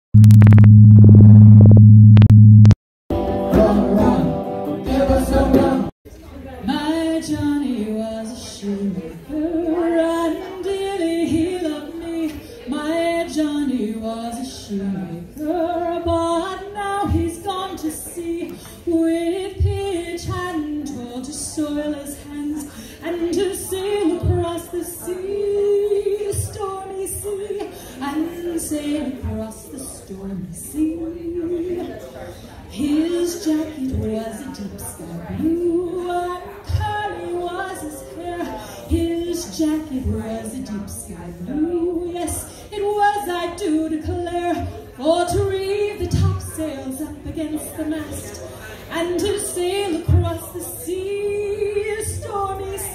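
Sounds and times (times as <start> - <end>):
steady electronic tone: 0.1 - 2.8
short synthetic intro sound: 0.2 - 2.8
woman singing a slow ballad: 6.7 - 32.0, 32.7 - 48.2, 48.9 - 52.9.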